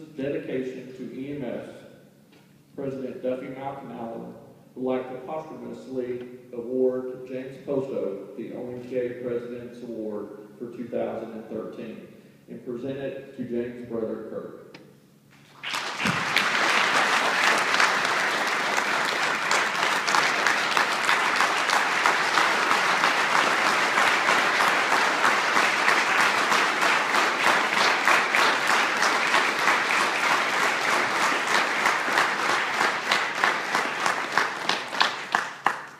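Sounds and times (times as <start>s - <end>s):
audience applauding: 15.4s - 35.9s.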